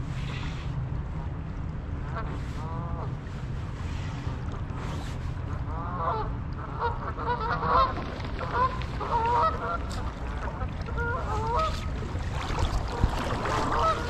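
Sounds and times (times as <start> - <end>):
steady low rumble: 0.0 - 14.0
geese honking: 5.7 - 11.8.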